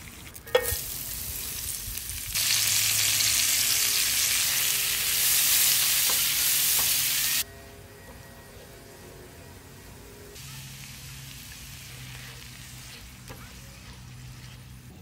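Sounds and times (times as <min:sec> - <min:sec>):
onions sizzling in hot pan: 0:00.1 - 0:07.4, 0:10.4 - 0:15.0.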